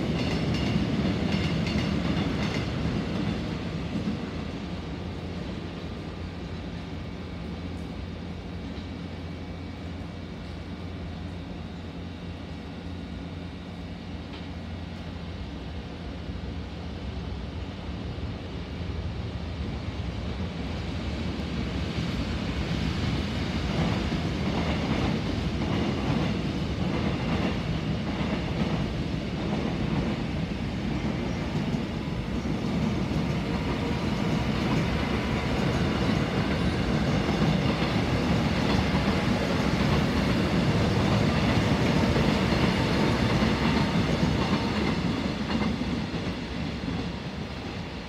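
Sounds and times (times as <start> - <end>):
clickety-clack over rail joints: 0.0 - 4.7, 14.2 - 15.1, 21.1 - 47.9
train wheels rumbling on rails: 0.0 - 48.0.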